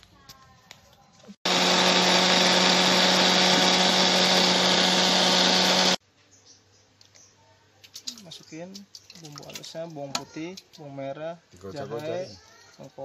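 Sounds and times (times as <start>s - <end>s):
electric blender grinding paste: 1.4s - 6.0s.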